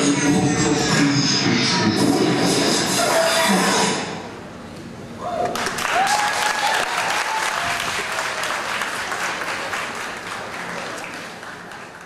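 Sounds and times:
crowd applauding: 0:05.5 - 0:12.0.

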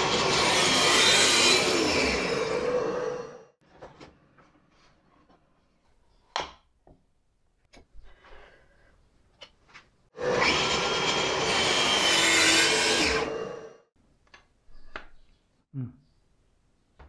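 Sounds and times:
saw blade cutting wood: 0:00.0 - 0:03.2, 0:10.2 - 0:13.7.

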